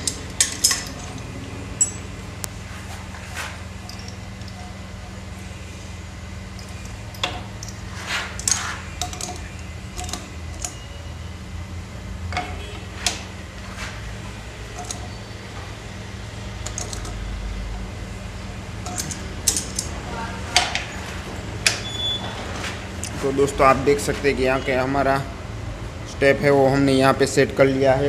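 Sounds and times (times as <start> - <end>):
hand tools clinking on metal: 0.0 - 2.1, 3.8 - 4.7, 18.8 - 19.9
steady low hum: 0.0 - 28.0.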